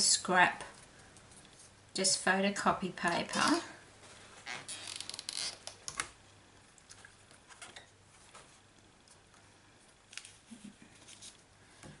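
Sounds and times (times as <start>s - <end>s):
paper rustling: 10.1s - 11.5s.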